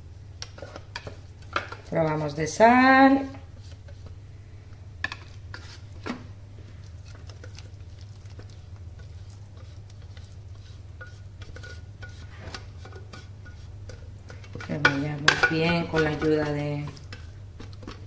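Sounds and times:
steady low hum: 0.0s - 18.0s
spatula scraping metal bowl: 5.5s - 6.1s, 7.1s - 18.0s.

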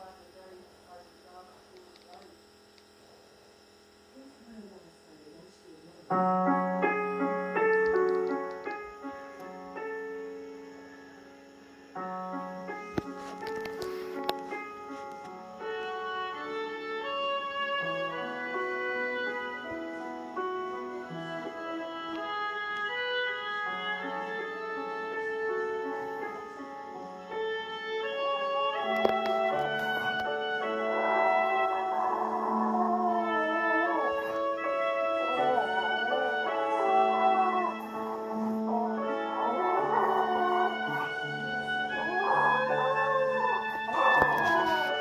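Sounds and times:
piano chords ringing: 4.9s - 45.0s
bowed strings playing held notes: 28.5s - 45.0s.

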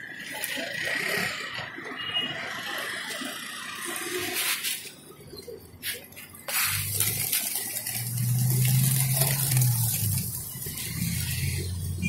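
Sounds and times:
pigeon wings flapping: 5.8s - 11.9s.

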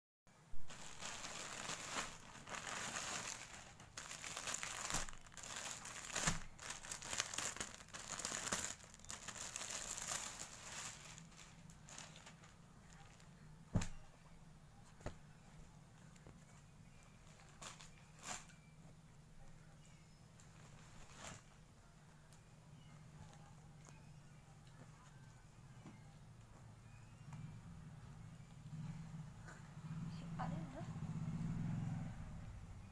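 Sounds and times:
plastic packaging crinkling: 0.6s - 13.2s.

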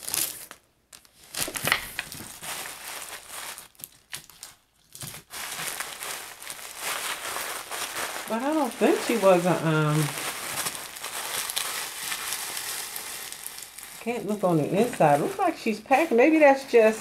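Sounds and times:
plastic wrapping crinkling: 0.0s - 17.0s.

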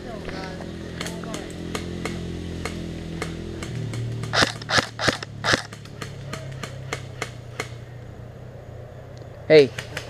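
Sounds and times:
airsoft gun shots: 4.2s - 7.7s.

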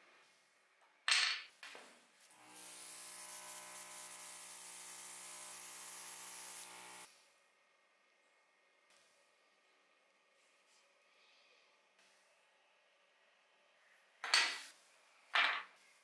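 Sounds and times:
airbrush compressor humming: 2.2s - 7.2s
paint spraying hiss: 2.2s - 7.2s.

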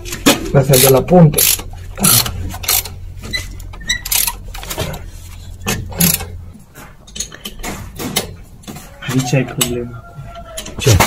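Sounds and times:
hand tools clicking on metal: 0.0s - 5.0s, 5.6s - 6.4s
steady low hum: 0.0s - 9.0s.

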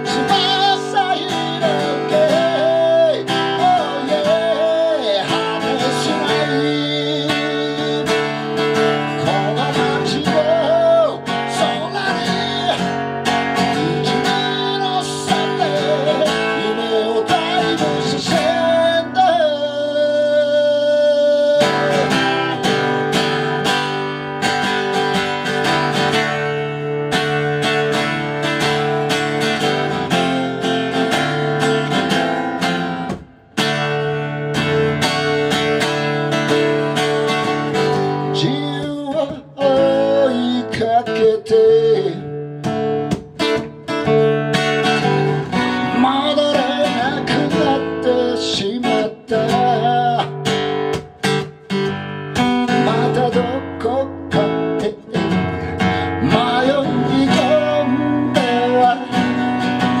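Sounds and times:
man singing: 0.0s - 26.6s, 34.6s - 51.5s, 52.4s - 60.0s
strummed acoustic guitar: 0.0s - 60.0s.

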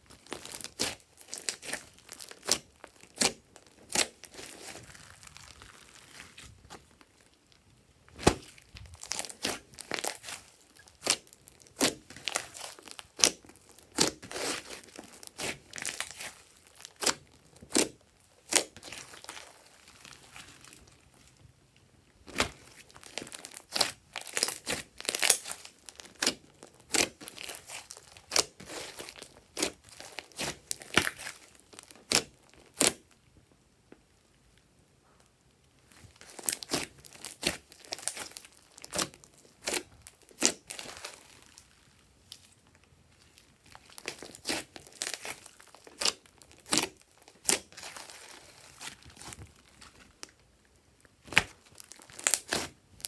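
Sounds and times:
slime squelching by hand: 0.1s - 21.4s, 22.2s - 33.0s, 35.9s - 50.4s, 51.2s - 53.0s.

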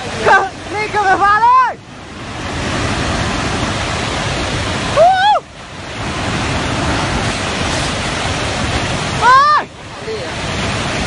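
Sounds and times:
flood torrent roaring: 0.0s - 11.0s
person's high-pitched cry: 9.2s - 9.7s.

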